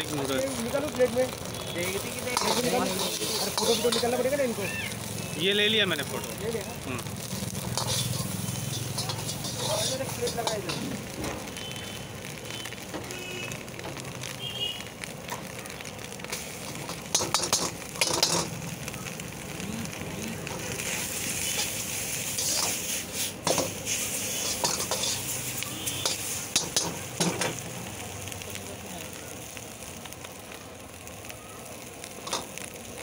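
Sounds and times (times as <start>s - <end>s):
noodles sizzling in a wok: 0.0s - 33.0s
ladle scraping a wok: 2.2s - 4.3s, 7.3s - 11.2s, 16.3s - 18.6s, 20.4s - 27.6s.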